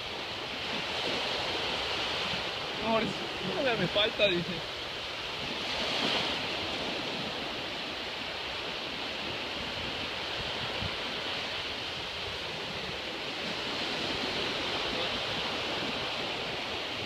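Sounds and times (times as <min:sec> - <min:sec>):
small waves breaking on sand: 0:00.0 - 0:17.0.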